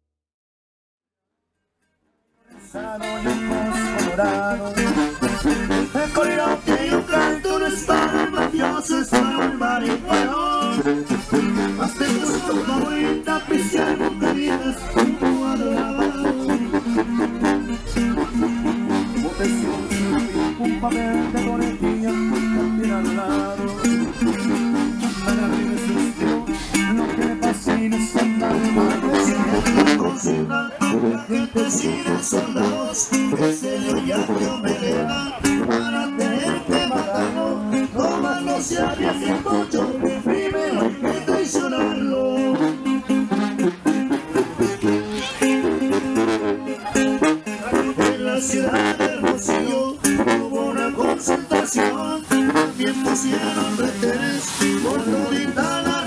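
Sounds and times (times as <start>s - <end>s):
accordion: 2.5s - 56.0s
person singing: 2.5s - 56.0s
plucked string instruments: 2.5s - 56.0s
strummed guitar: 2.5s - 56.0s
tuba bass line: 2.5s - 56.0s.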